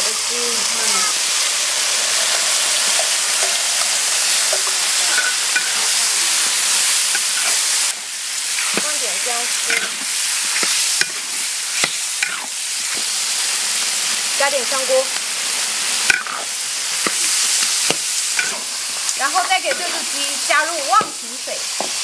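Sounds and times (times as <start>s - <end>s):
chicken sizzling in hot oil: 0.0s - 22.0s
metal spatula scraping wok: 1.6s - 13.1s, 16.0s - 21.1s.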